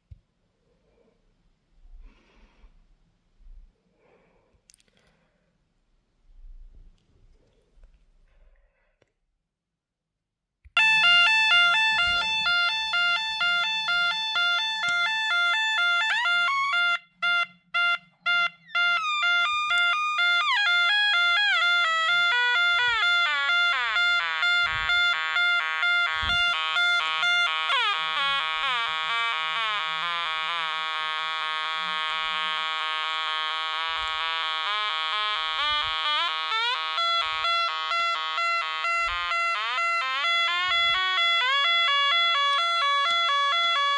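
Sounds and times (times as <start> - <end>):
electronic alarm sounder tone: 10.8 - 43.9.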